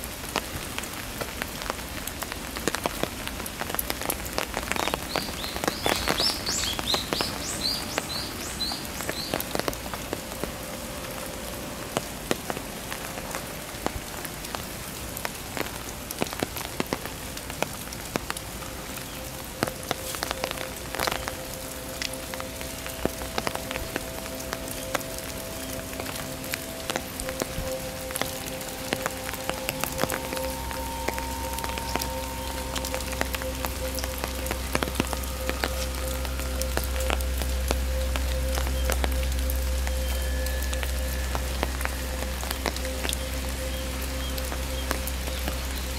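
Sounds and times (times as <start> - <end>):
large raindrops splashing: 0.0 - 45.9
rain on stone paving and leaves: 0.0 - 45.9.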